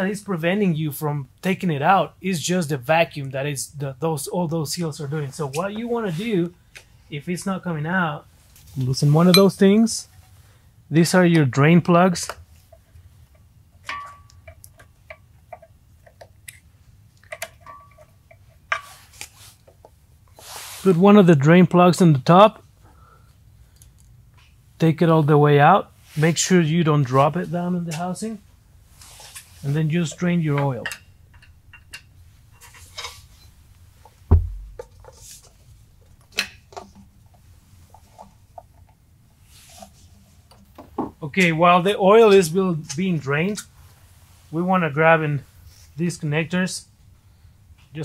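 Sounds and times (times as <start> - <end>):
handling knocks and clicks: 34.0 - 39.0
heavy low thump: 34.3 - 34.9.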